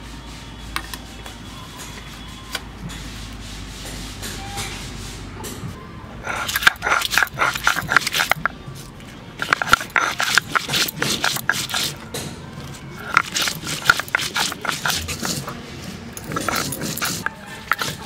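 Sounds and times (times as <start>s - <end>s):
stone roller grinding chilies: 6.2s - 8.6s, 9.4s - 18.0s.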